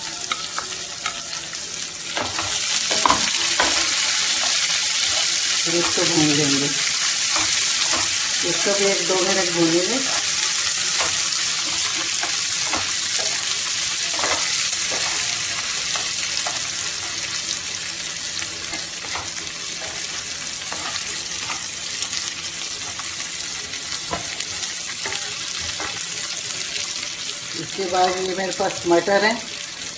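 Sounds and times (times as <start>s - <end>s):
onion sizzling in pan: 0.0s - 29.9s
spatula scraping and tapping pan: 2.2s - 6.1s, 7.2s - 8.4s, 10.1s - 17.3s, 18.7s - 21.7s.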